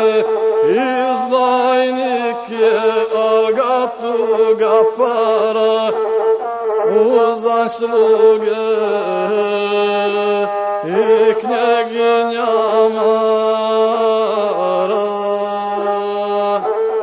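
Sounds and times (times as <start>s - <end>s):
bowed single-string fiddle: 0.0s - 17.0s.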